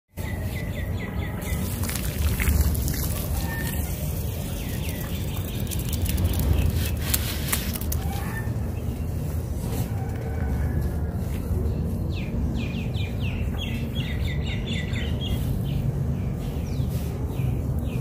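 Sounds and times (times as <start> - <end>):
water pouring over blocks: 1.5 - 8.0.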